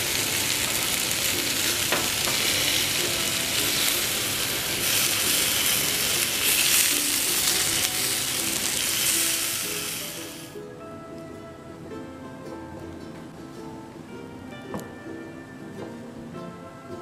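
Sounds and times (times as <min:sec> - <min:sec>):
chicken sizzling on a grill: 0:00.0 - 0:10.6.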